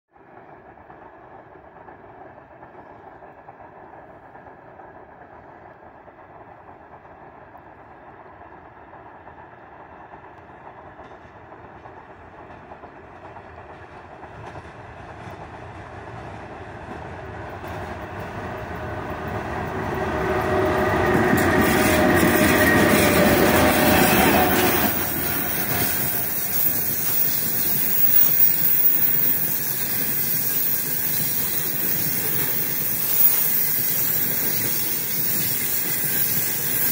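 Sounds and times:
electric locomotive hum: 0:00.2 - 0:36.9
wheel clatter: 0:21.3 - 0:36.9
freight wagons rolling: 0:21.6 - 0:36.9.

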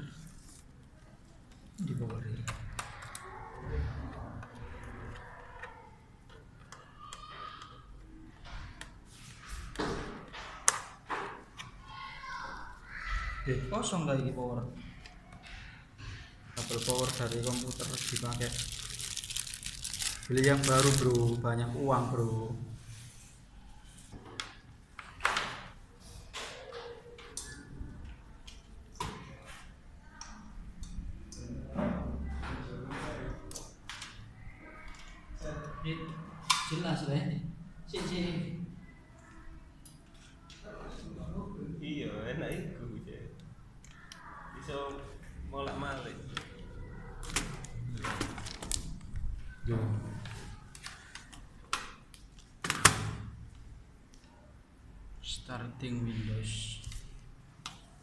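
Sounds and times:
cable rustling: 0:16.6 - 0:21.5.

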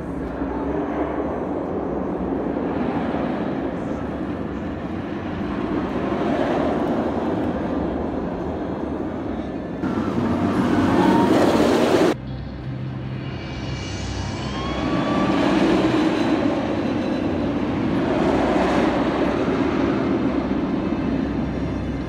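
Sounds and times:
roller coaster train rumbling: 0:00.0 - 0:22.0.

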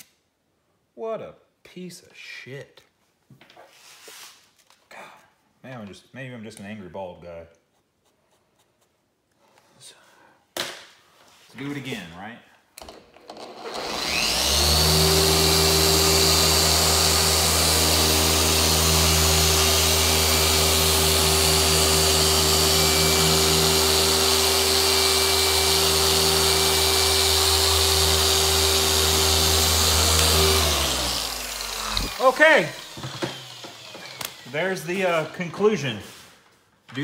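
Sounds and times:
car polisher humming and whining: 0:13.6 - 0:34.5.

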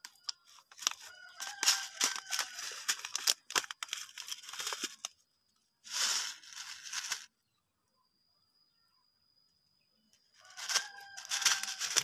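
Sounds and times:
plastic packet crinkling: 0:00.0 - 0:05.2, 0:05.9 - 0:07.3, 0:10.4 - 0:12.0.

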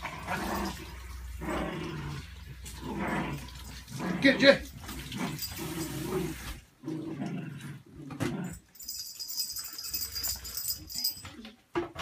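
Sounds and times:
dogs growling in play: 0:00.0 - 0:08.9.

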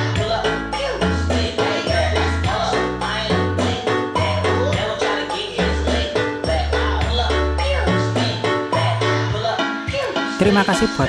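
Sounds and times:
deep bass notes: 0:00.0 - 0:09.4
music through speakers: 0:00.0 - 0:11.0.

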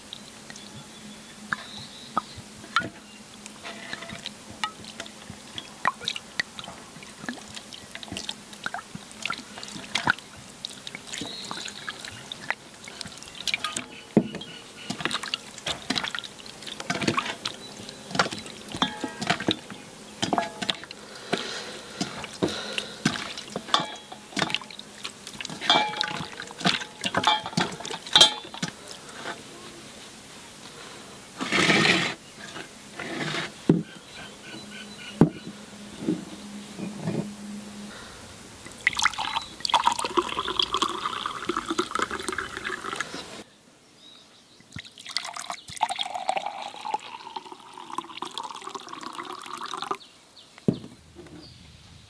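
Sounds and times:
liquid dripping and pouring: 0:03.8 - 0:14.3, 0:14.9 - 0:29.0, 0:38.6 - 0:43.1, 0:44.7 - 0:50.0
utensils clinking on dishes: 0:13.5 - 0:24.8, 0:25.5 - 0:29.4.

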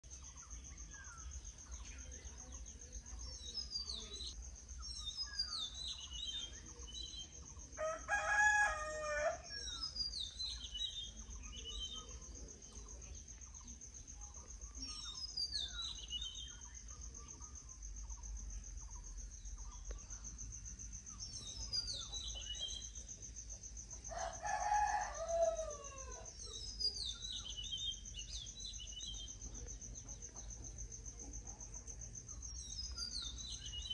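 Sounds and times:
small bird singing: 0:00.0 - 0:07.9, 0:08.6 - 0:33.9
rooster crowing: 0:07.8 - 0:09.7, 0:24.1 - 0:26.4.

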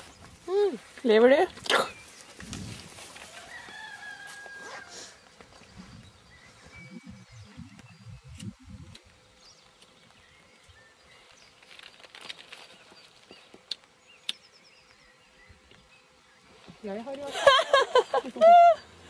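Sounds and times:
faint bird chirps: 0:04.8 - 0:08.8
low rumble: 0:06.6 - 0:09.0.

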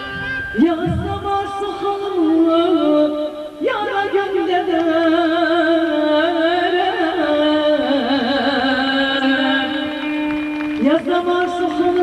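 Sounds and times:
ornamented melody with vibrato: 0:00.0 - 0:02.0
steady musical accompaniment: 0:00.0 - 0:03.6.

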